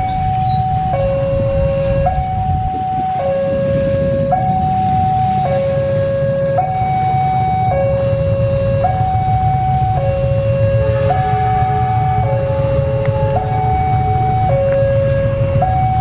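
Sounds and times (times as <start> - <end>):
low rumble: 0.0 - 5.2
two-tone warning alarm: 0.0 - 16.0.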